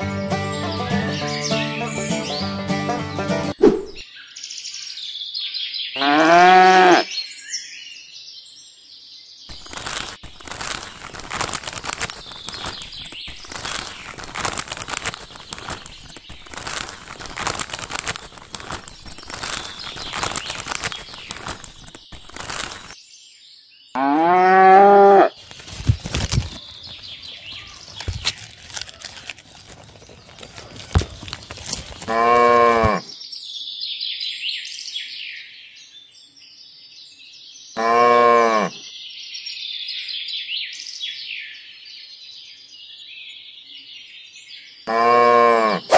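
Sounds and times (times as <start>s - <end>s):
cow mooing: 6.0s - 7.1s, 32.1s - 33.0s, 37.8s - 38.8s, 44.9s - 45.9s
grass rustling out of bag: 9.5s - 23.0s, 25.4s - 33.0s.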